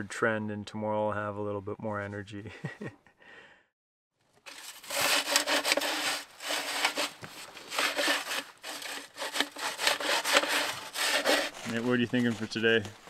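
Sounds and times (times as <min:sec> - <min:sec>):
hand saw cutting wood: 0:04.5 - 0:12.0.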